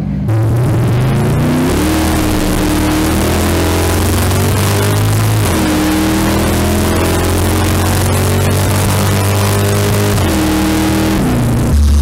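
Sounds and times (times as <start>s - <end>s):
truck engine at full throttle: 0.0s - 12.0s.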